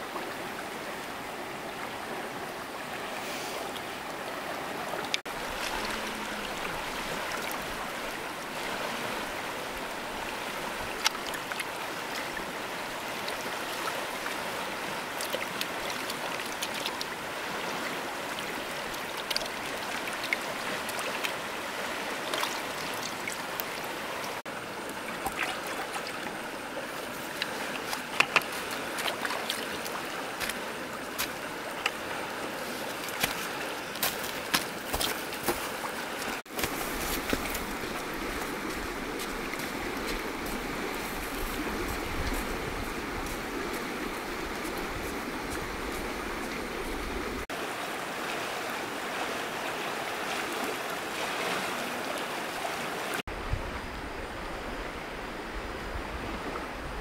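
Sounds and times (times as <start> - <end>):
river flowing: 0.0 - 57.0.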